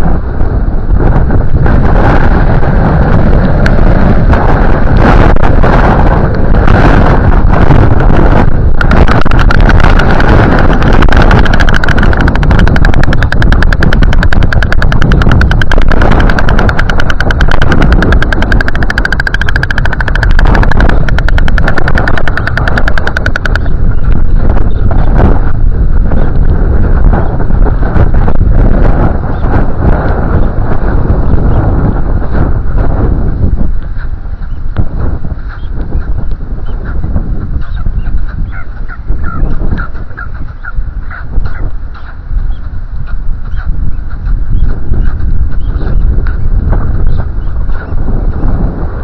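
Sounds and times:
wind buffeting microphone: 0.0 - 49.0
fast even rattle: 8.5 - 23.8.

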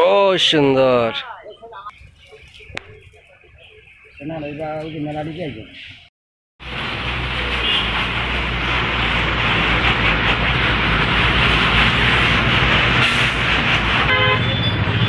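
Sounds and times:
loud rushing noise: 6.6 - 15.0.

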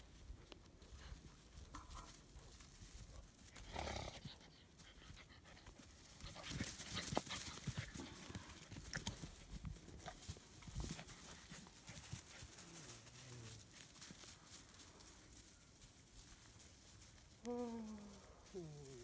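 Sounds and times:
puppies panting: 4.1 - 15.1
paws and claws tapping on concrete: 5.5 - 12.7
puppies scuffling: 5.7 - 17.4.

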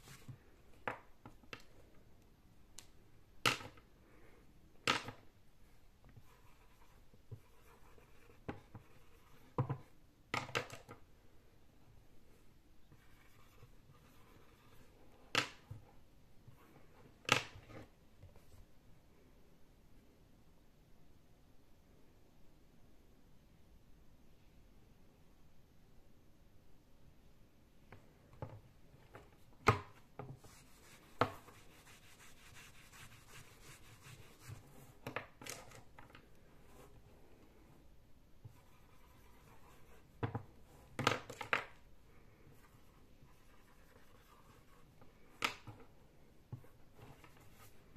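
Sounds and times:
soft rubbing: 5.6 - 10.0, 12.1 - 18.7, 29.0 - 35.1, 35.7 - 41.0, 41.8 - 47.9
marker scratching on whiteboard: 6.2 - 9.9, 12.9 - 15.0, 29.8 - 35.4, 38.4 - 40.9, 42.6 - 45.8, 46.5 - 47.9.

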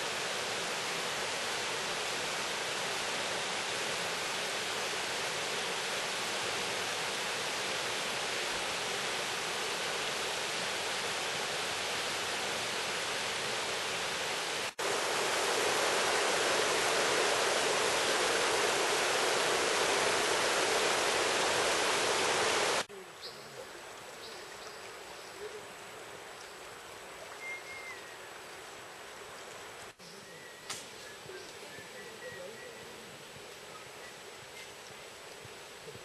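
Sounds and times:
rocky river rushing: 0.0 - 22.9
faint bird chirps: 27.2 - 28.4, 30.0 - 35.0.

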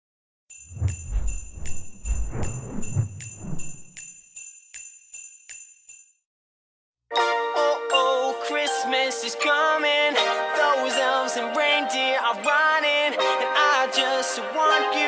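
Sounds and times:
jingle bells shaken: 0.6 - 6.2
deep low rumble: 0.8 - 3.8.

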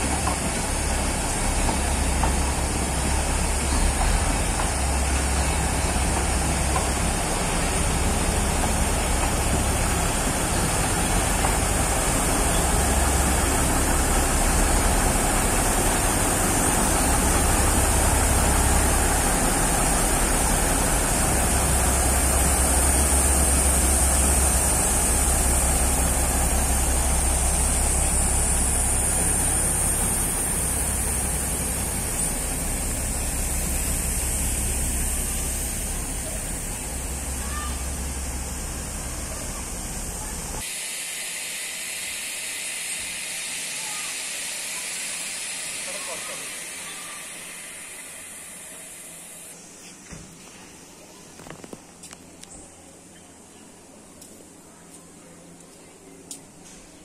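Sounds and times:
diesel locomotive engine rumbling: 0.0 - 49.8.

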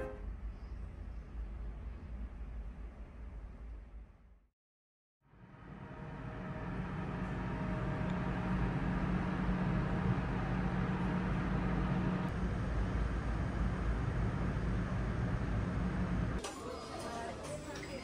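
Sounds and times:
low mechanical hum of machinery: 5.3 - 18.0.

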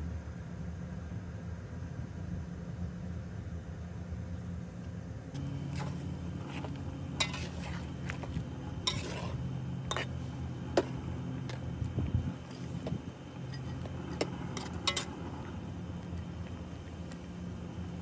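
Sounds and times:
steady low hum: 0.0 - 18.0
metal spatula scraping wok: 5.6 - 11.6, 12.3 - 15.4.

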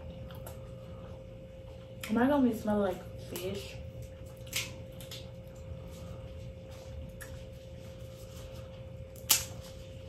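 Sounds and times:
faint hum: 0.0 - 10.0
crab shell cracking: 4.4 - 5.3, 9.2 - 9.6.

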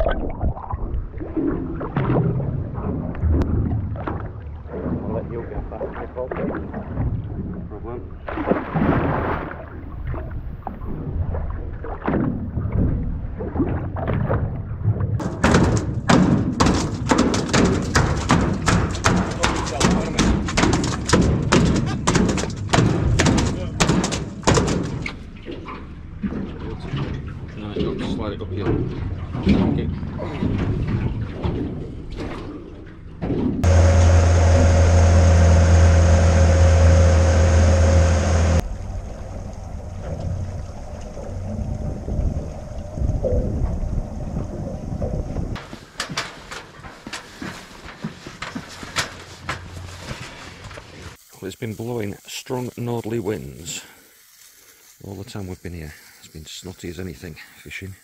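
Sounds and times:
water sloshing and splashing: 0.0 - 51.4
fish tail thumping on metal deck: 15.2 - 25.2
boat engine humming: 15.2 - 51.2.

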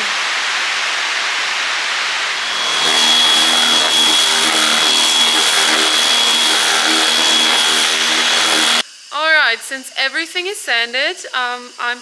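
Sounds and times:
rain hissing: 0.0 - 9.1
orbital sander on plywood: 2.4 - 8.8.

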